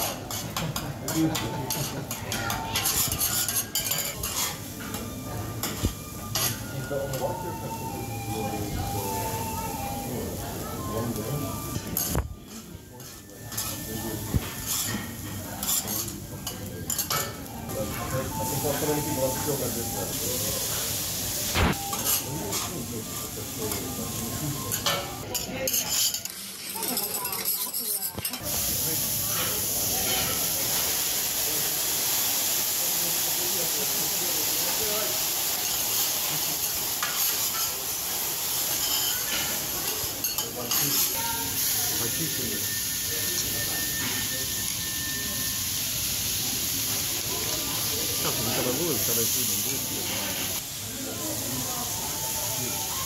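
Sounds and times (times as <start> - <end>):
food sizzling: 0.0 - 53.0
metal spatulas scraping griddle: 1.7 - 5.0, 14.6 - 16.1, 24.8 - 28.4.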